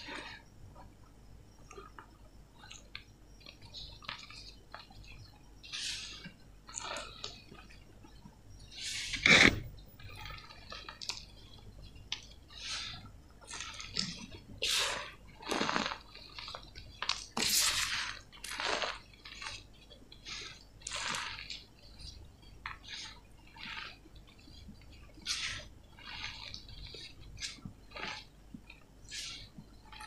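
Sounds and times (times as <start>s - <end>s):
powder sifting through fingers: 12.4s - 30.0s.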